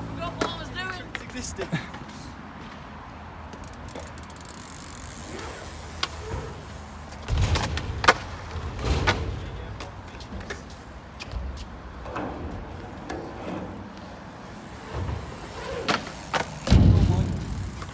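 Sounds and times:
bike tyre rumble: 0:03.4 - 0:17.9
bike wheels knocking on ramps: 0:05.4 - 0:09.9, 0:14.7 - 0:17.9.

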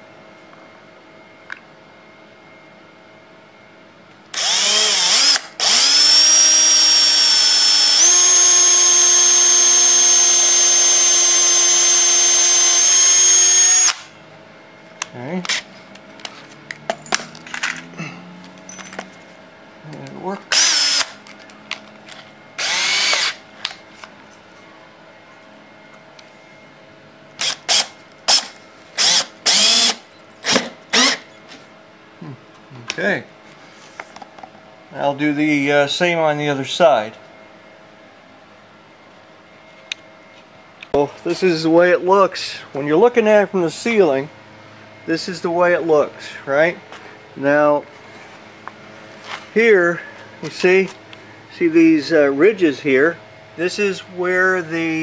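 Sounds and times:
cordless drill boring into wood: 0:04.3 - 0:14.1, 0:20.5 - 0:21.2, 0:22.6 - 0:23.4, 0:27.4 - 0:31.2.

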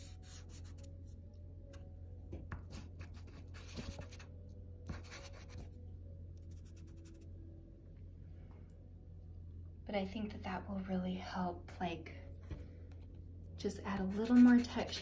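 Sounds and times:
pastel scratching on paper: 0:00.0 - 0:00.9, 0:02.6 - 0:04.3, 0:04.9 - 0:05.7, 0:14.0 - 0:15.0
steady low hum: 0:00.0 - 0:15.0.

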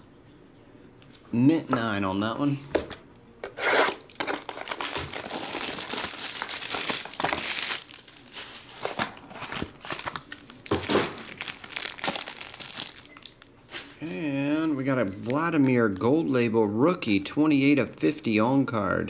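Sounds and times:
plastic foil crinkling: 0:04.1 - 0:14.1.

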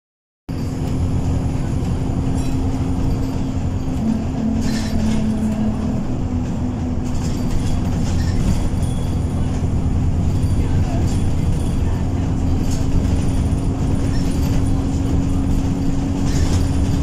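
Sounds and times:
bus engine drone: 0:00.5 - 0:17.0
road rumble: 0:00.5 - 0:17.0
second engine tone: 0:03.9 - 0:06.8.

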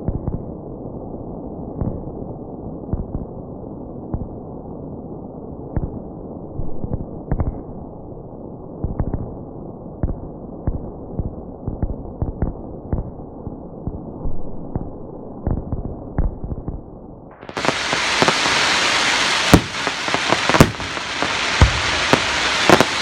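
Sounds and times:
fireworks rumble: 0:10.0 - 0:23.0
fireworks bangs and pops: 0:17.4 - 0:23.0.

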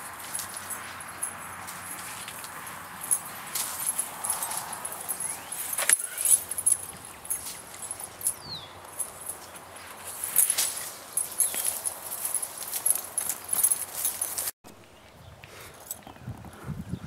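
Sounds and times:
branches rustling and cracking: 0:00.0 - 0:14.8
branches snapping: 0:01.6 - 0:14.5.

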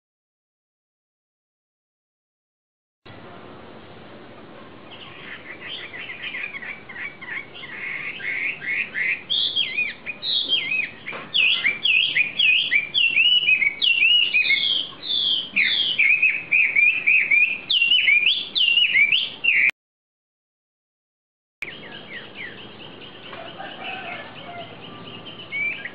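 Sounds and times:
songbird whistling: 0:04.9 - 0:19.7, 0:21.6 - 0:25.9.

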